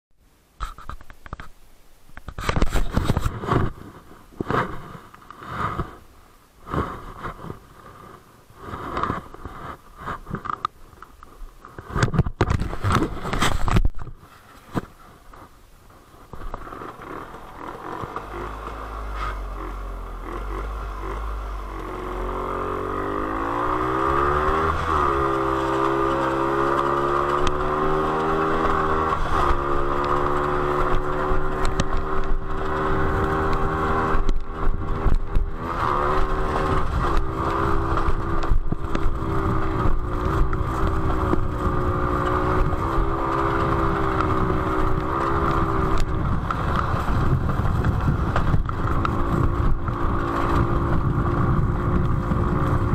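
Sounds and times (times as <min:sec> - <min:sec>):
scattered clicks of dirt: 0:00.6 - 0:06.0, 0:06.6 - 0:19.5, 0:23.2 - 0:52.9
motorcycle engine accelerating: 0:16.2 - 0:52.9.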